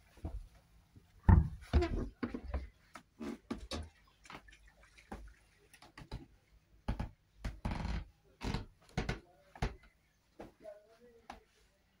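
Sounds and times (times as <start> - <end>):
footsteps and knocks in room: 0.0 - 4.5, 5.1 - 12.0.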